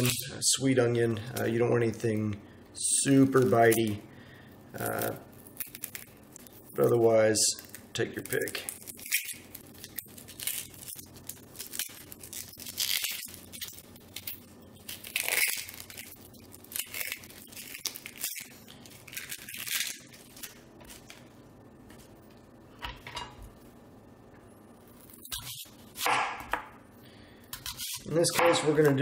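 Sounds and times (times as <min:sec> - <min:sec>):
onion skin crackling and tearing: 0:00.0 - 0:00.4, 0:03.0 - 0:04.1, 0:04.7 - 0:21.3, 0:24.8 - 0:26.5.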